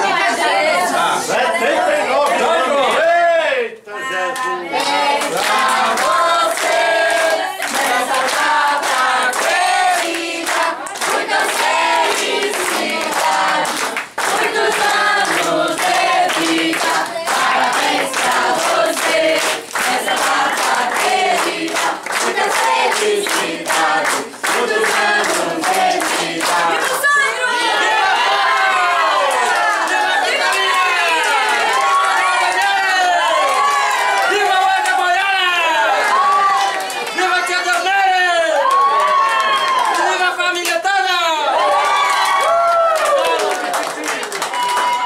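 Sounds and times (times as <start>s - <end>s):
people clapping in rhythm: 0.0s - 3.1s, 4.2s - 45.0s
crowd singing a birthday song: 0.0s - 34.8s.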